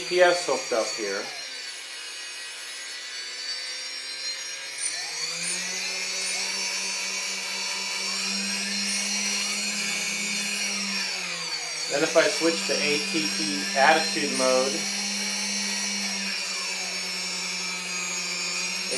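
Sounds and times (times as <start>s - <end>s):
drone motors whining: 0.0s - 18.9s.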